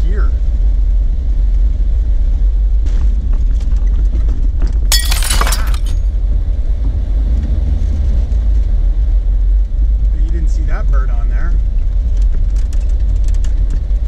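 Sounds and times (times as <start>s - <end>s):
vehicle engine and tyres rumbling: 6.1s - 14.0s.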